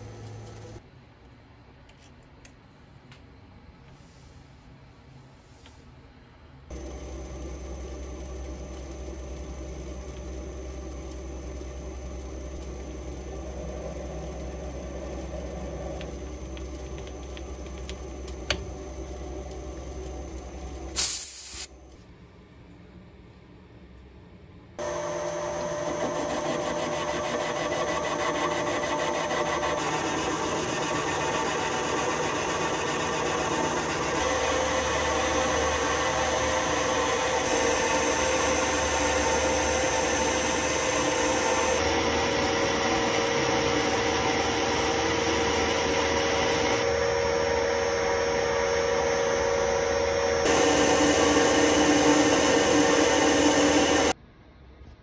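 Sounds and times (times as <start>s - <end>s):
metal lathe cutting steel: 24.8s - 54.2s.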